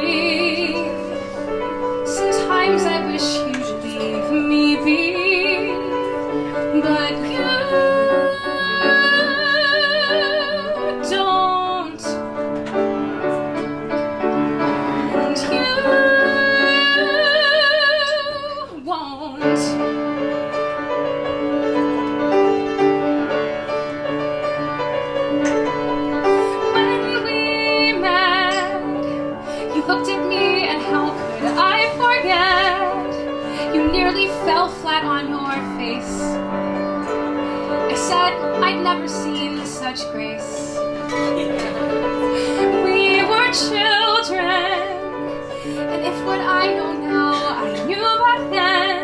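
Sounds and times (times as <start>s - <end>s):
woman singing a slow ballad: 0.0s - 1.1s, 2.1s - 12.2s, 15.2s - 20.0s, 26.5s - 36.4s, 42.6s - 45.1s, 45.8s - 49.0s
piano accompaniment: 0.0s - 49.0s.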